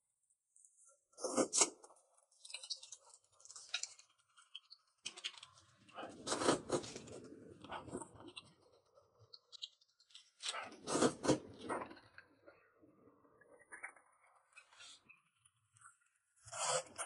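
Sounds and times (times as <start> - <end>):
chewing: 2.4 - 12.2
noodle slurping: 6.1 - 7.0, 10.7 - 11.6.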